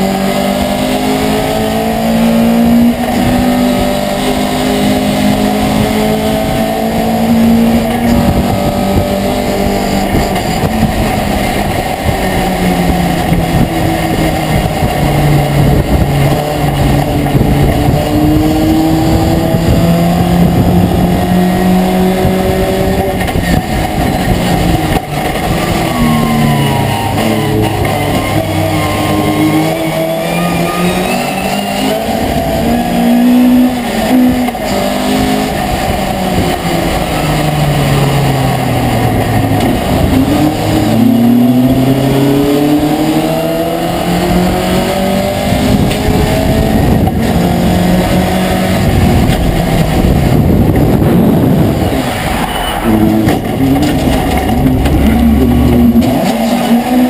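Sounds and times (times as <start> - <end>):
road noise: 0.0 - 57.0
truck engine revving: 0.0 - 57.0.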